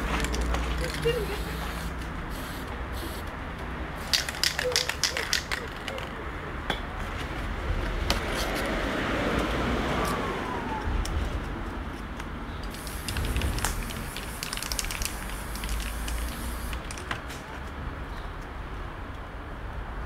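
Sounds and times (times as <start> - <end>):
street traffic rumble: 0.0 - 20.0
spray-paint can hissing: 0.3 - 3.3, 4.0 - 5.8, 12.6 - 17.0.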